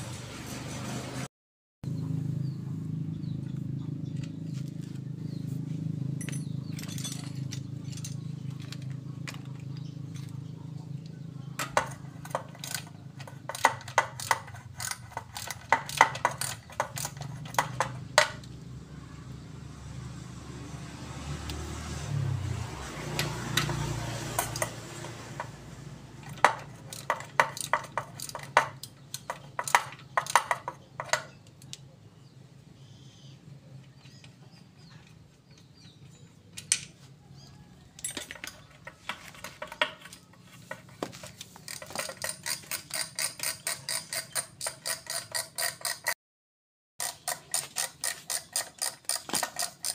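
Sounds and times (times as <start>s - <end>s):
metal gear parts clinking: 6.2s - 10.5s, 11.6s - 17.9s, 26.2s - 31.3s, 38.0s - 40.4s, 41.2s - 46.1s, 47.0s - 49.9s.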